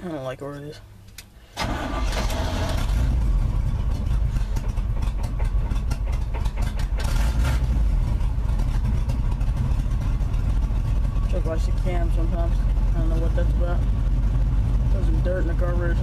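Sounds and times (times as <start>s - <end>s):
man talking: 0.0s - 0.9s, 11.3s - 13.8s, 14.9s - 16.0s
engine starting and idling unevenly: 1.5s - 16.0s.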